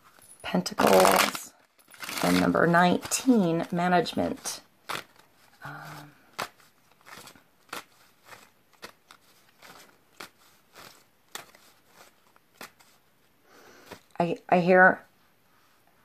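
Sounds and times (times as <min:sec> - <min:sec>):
cards being shuffled: 0:00.8 - 0:13.0, 0:13.8 - 0:14.2.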